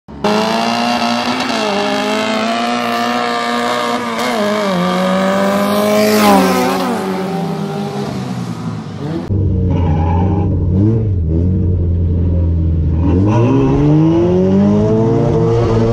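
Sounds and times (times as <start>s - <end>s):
drag cars racing past: 0.2s - 11.5s.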